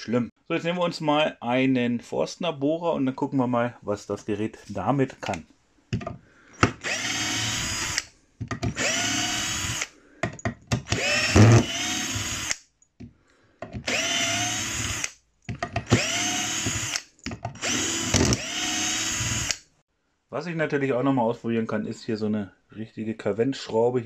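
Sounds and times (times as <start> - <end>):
cordless drill whining: 6.6 - 8.1, 8.7 - 10.0, 10.8 - 12.6, 13.7 - 15.2, 15.8 - 19.7.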